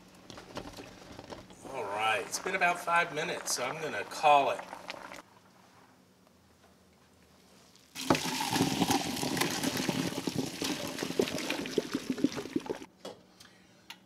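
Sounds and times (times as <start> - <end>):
water splashing into colander: 8.0 - 12.9.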